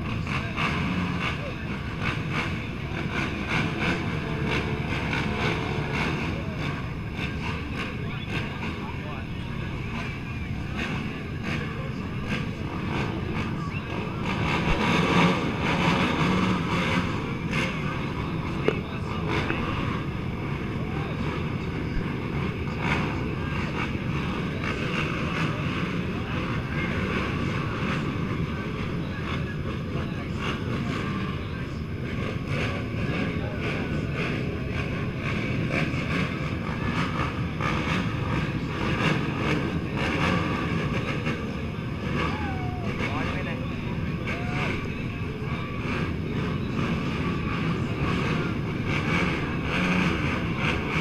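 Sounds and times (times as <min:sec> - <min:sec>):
distant atv engines rumbling: 0:00.0 - 0:51.0.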